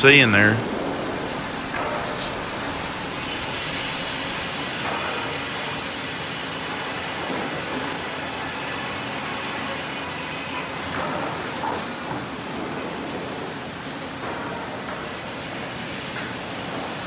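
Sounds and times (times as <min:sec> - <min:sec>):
circular saw cutting log: 0:00.0 - 0:12.3
mill machinery running: 0:00.0 - 0:17.0.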